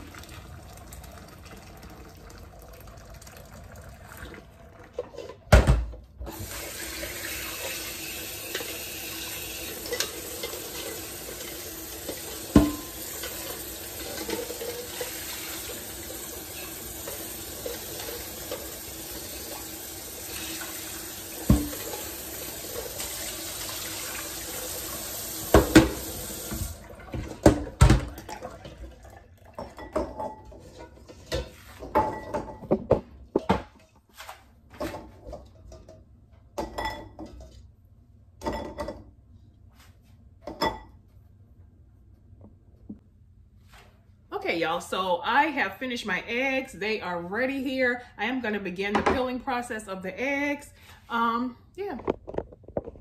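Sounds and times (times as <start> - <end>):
faucet running into a metal pot: 0.0 - 5.4, 6.3 - 30.8
pot clattering: 9.8 - 15.8, 27.1 - 33.8
pot knocking against a sink: 12.1 - 13.4, 21.4 - 21.9, 25.5 - 28.4.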